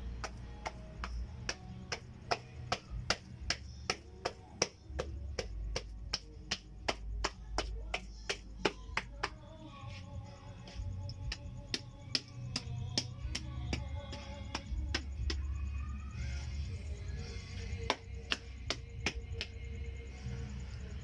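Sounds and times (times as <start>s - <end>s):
background music: 0.0s - 21.0s
hands slapping damp earth: 0.2s - 9.5s, 10.6s - 15.4s, 17.8s - 19.6s.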